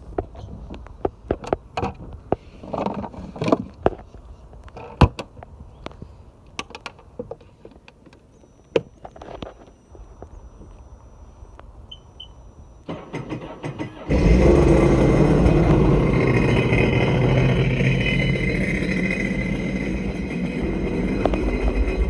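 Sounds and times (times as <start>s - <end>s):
faint steady high tone: 8.1s - 12.9s, 15.9s - 22.0s.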